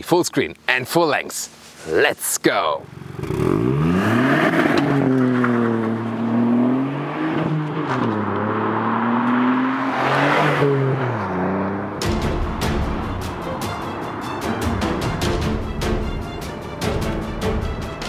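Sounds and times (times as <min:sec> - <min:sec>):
car engine accelerating: 0:02.9 - 0:15.0
music with sharp beat: 0:12.0 - 0:18.0.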